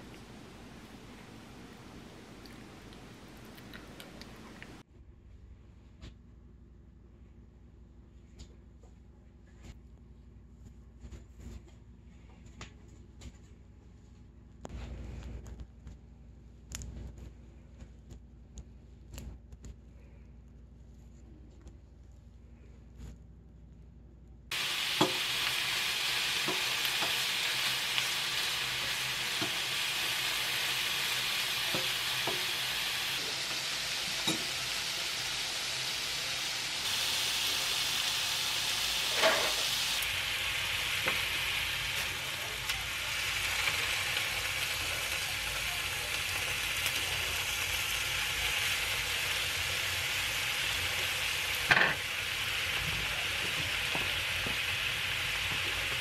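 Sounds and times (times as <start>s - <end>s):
meat sizzling in a pan: 24.5s - 56.0s.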